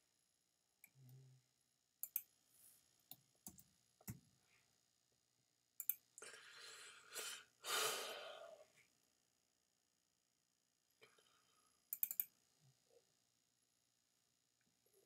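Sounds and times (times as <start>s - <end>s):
computer mouse clicks: 2.0s - 2.3s, 5.8s - 6.1s, 11.9s - 12.3s.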